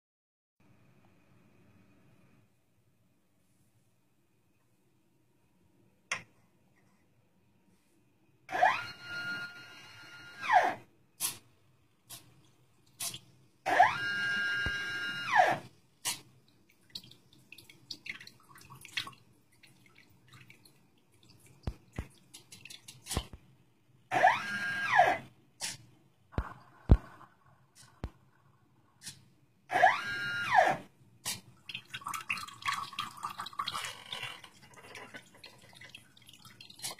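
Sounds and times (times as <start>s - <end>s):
electric pump motor whine: 8.5s - 10.8s, 13.7s - 15.6s, 24.1s - 25.2s, 29.7s - 30.8s.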